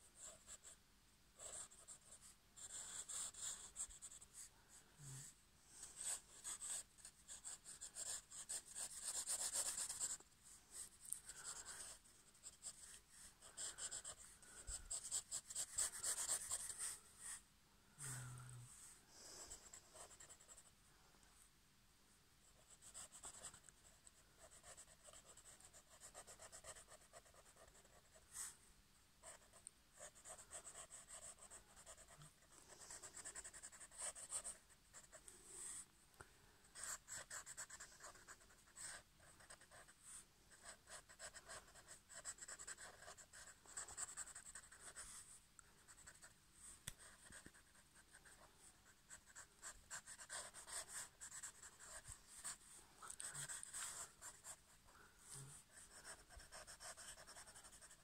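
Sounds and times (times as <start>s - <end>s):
pen scratching on paper: 1.4s - 4.2s, 5.8s - 10.2s, 10.8s - 17.4s, 19.7s - 20.7s, 22.6s - 28.5s, 29.2s - 35.2s, 36.8s - 45.2s, 47.0s - 54.7s, 55.6s - 58.0s.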